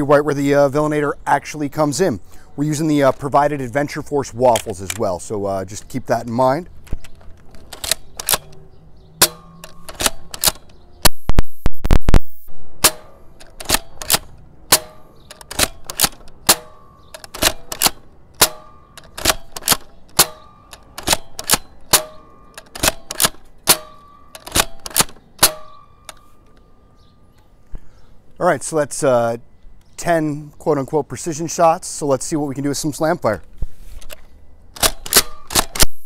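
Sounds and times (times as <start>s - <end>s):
toy blaster plastic clacks: 9.2s - 10.8s, 13.4s - 26.2s.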